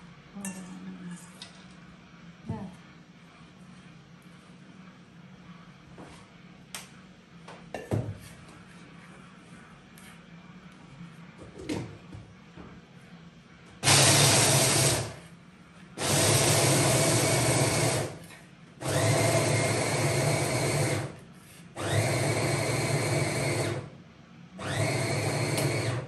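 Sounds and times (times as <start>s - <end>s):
electric grinder grinding nuts: 13.8s - 15.1s, 16.0s - 18.1s, 18.8s - 21.1s, 21.8s - 23.8s, 24.6s - 26.0s.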